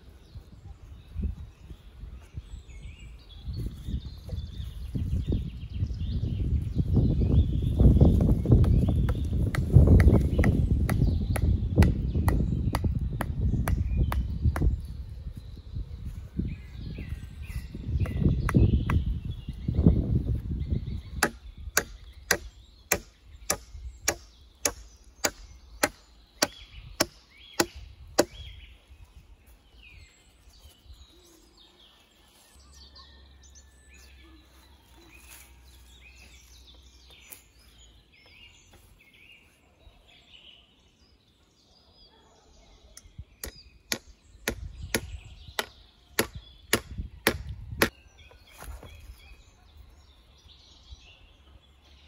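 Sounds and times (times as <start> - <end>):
axe chopping wood: 8.2 - 14.8, 21.2 - 28.5, 43.4 - 48.0.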